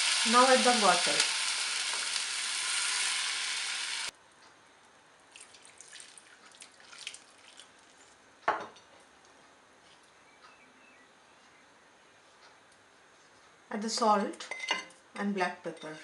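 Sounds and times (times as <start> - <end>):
water hissing in hot wok: 0.0 - 4.1.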